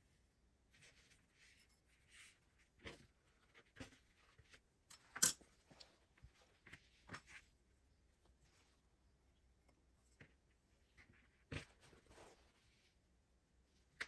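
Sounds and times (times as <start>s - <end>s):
fabric rustling: 10.1s - 13.0s.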